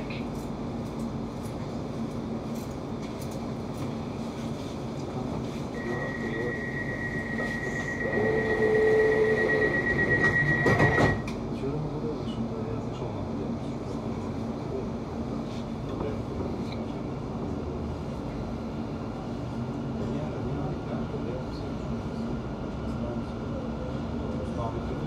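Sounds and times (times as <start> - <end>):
train hum: 0.0 - 25.0
lower warning tone: 5.7 - 11.3
high beeping door warning tone: 5.8 - 11.3.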